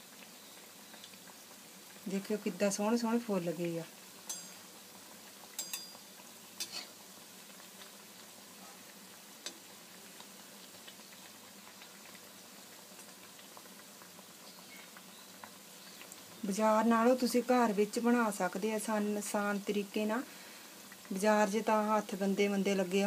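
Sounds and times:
fritters deep-frying in oil: 0.0s - 23.0s
metal spatula clicking on wok: 4.3s - 4.6s, 5.6s - 6.0s.

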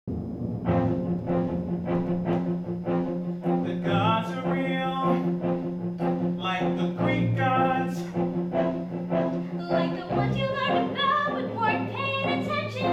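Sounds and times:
steady beat: 0.1s - 10.9s
low string notes: 0.1s - 12.9s
voices singing: 6.4s - 12.9s.

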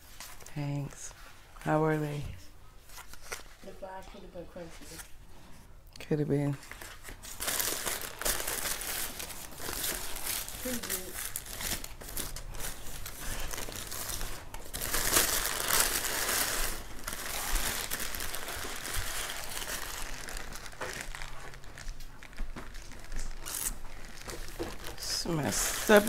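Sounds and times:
paper wrapper crinkling: 2.8s - 3.9s, 6.5s - 26.0s.

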